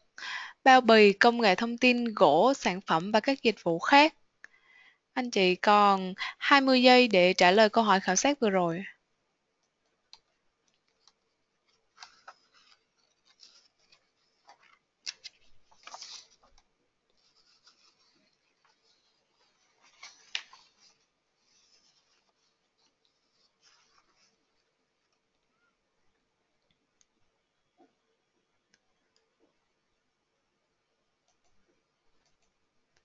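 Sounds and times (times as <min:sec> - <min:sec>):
faint steady hum: 0:00.0 - 0:33.0
scratchy rustles: 0:10.9 - 0:24.8.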